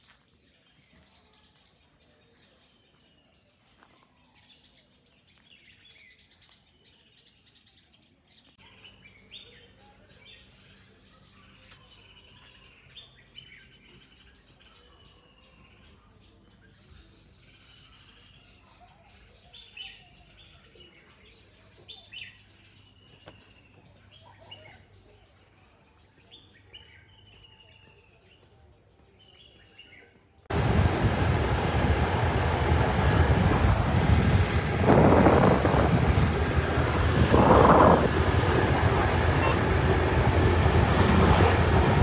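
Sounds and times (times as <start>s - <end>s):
road noise in moving vehicle: 30.5s - 42.0s.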